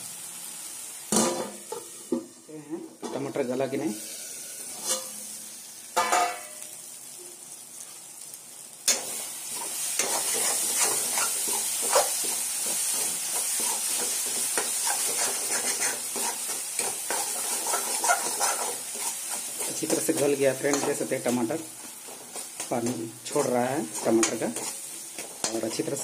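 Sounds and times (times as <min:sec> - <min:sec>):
onions and tomatoes sizzling: 0:00.0 - 0:26.0
metal lid clanking: 0:06.0 - 0:06.5
spatula scraping pan: 0:08.9 - 0:26.0.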